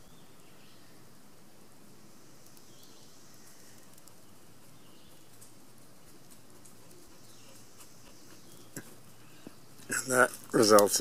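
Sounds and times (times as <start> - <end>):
low hiss: 0.0 - 11.0
faint high ticks: 2.4 - 4.3, 10.6 - 11.0.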